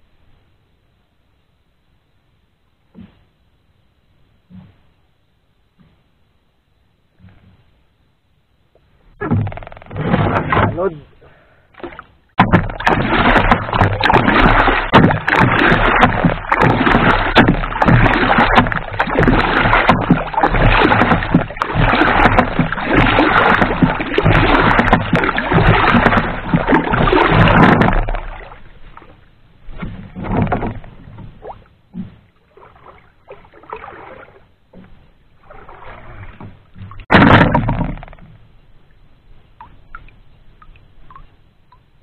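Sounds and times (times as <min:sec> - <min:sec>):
paddle splashing water: 0:08.8 - 0:41.5
paddle knocks: 0:09.1 - 0:11.0, 0:11.8 - 0:38.5.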